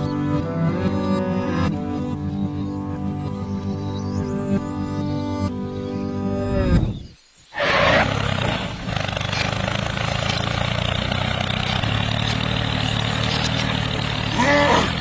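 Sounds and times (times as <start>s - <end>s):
model tractor engine hum: 0.0s - 6.6s, 7.6s - 15.0s
cultivator pulling through sand: 7.6s - 15.0s.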